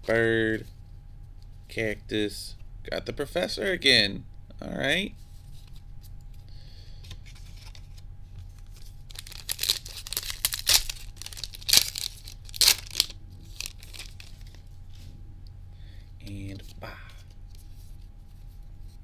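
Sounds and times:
foil wrapper tearing and crinkling: 0:08.7 - 0:14.6.

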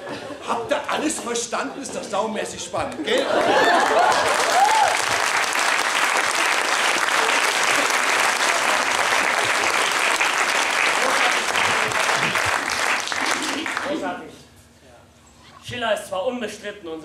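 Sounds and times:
audience applauding: 0:03.2 - 0:14.0.

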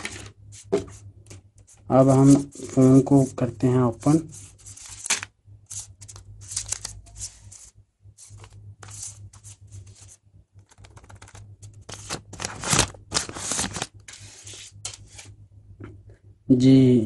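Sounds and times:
packaging rustling and scratching: 0:04.0 - 0:15.3.

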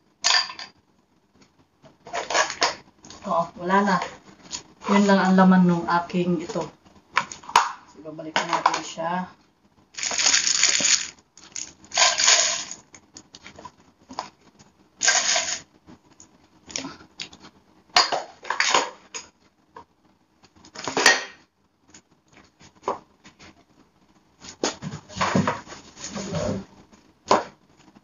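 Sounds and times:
plastic bottles clattering: 0:10.0 - 0:12.8.

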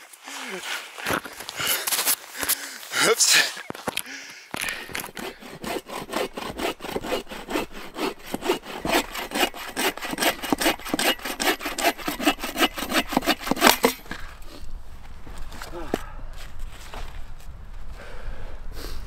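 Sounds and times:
hand saw cutting wood: 0:04.6 - 0:14.2.

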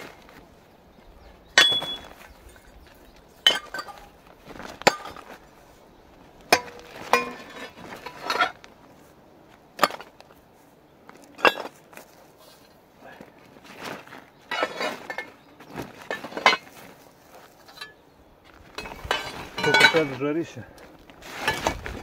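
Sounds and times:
scrap iron clanking into bag: 0:14.5 - 0:16.9, 0:21.2 - 0:21.8.

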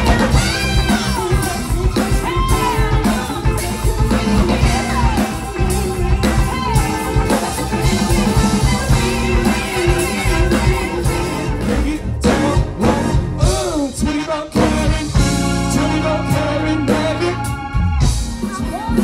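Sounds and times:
band with horns playing: 0:00.0 - 0:19.0
person singing: 0:00.0 - 0:19.0.

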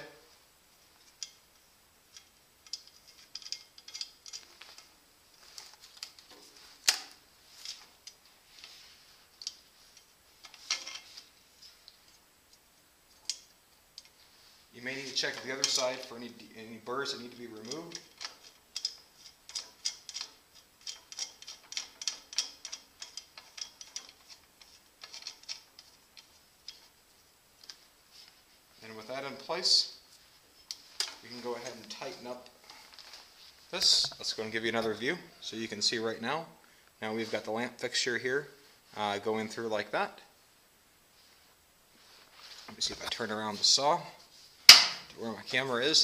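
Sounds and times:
lamp fixture clicks and rattles: 0:02.1 - 0:04.9, 0:17.3 - 0:26.9, 0:44.7 - 0:45.1.

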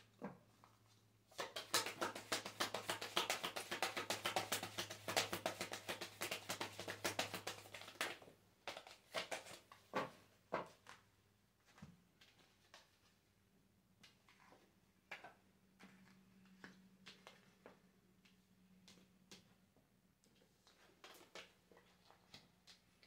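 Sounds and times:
cards being shuffled: 0:01.4 - 0:10.1.

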